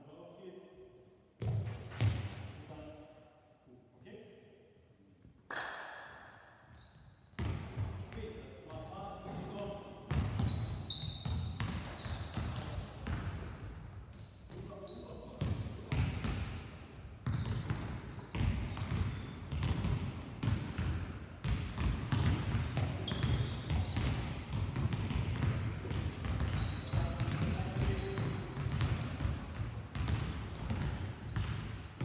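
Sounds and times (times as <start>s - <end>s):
sneakers squeaking on floor: 6.3s - 32.0s
basketballs bouncing: 7.4s - 8.1s, 10.1s - 13.7s, 15.4s - 16.5s, 17.2s - 32.0s.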